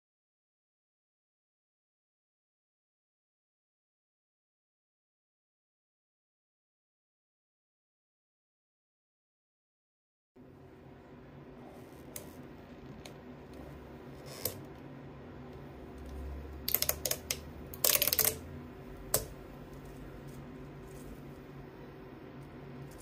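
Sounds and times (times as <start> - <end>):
plastic chain links clicking: 16.7 - 18.4.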